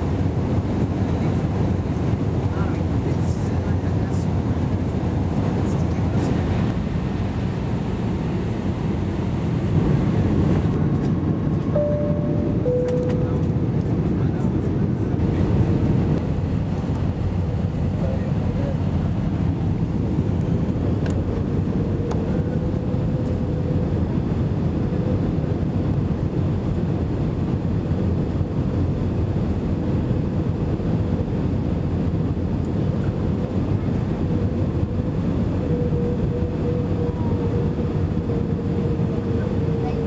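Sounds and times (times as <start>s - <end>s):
airliner cabin engine noise: 0.0s - 40.0s
steady hum: 11.7s - 26.1s.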